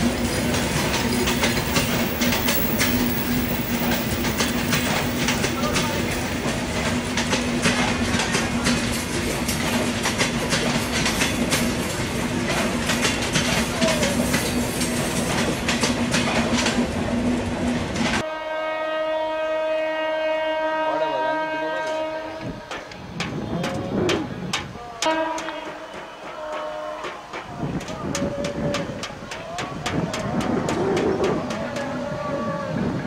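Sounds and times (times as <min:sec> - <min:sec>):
train wheels clattering over rail joints: 0:00.0 - 0:18.2, 0:22.5 - 0:33.0
train horn: 0:18.2 - 0:22.7, 0:25.0 - 0:27.4.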